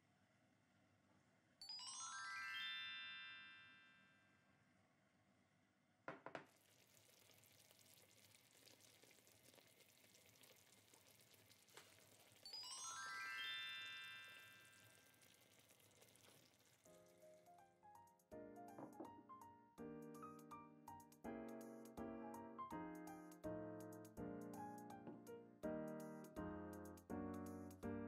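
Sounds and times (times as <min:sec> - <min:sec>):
sparkly chime effect: 0:01.6 - 0:04.2, 0:12.4 - 0:14.9
food bubbling in oil: 0:06.4 - 0:17.6.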